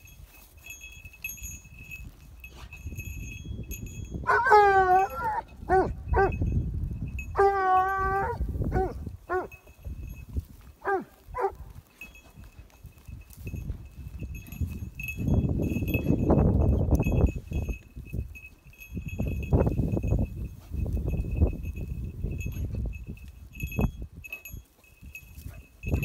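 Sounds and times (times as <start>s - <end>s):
faint steady ringing: 0.0s - 5.3s, 9.3s - 10.7s, 11.8s - 26.0s
dog yelping and howling: 4.3s - 6.3s, 7.3s - 9.5s, 10.8s - 11.6s.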